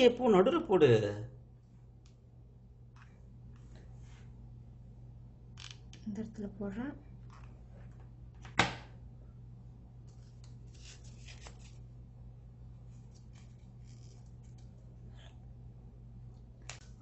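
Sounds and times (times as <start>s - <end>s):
low steady hum: 0.0s - 17.0s
paper rustling: 10.0s - 11.9s, 12.8s - 15.4s.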